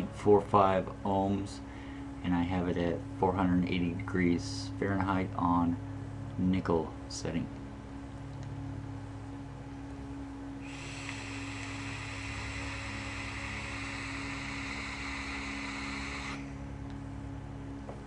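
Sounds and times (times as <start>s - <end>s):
steady low hum: 0.0s - 18.0s
airy hiss of vape drag: 10.6s - 16.6s.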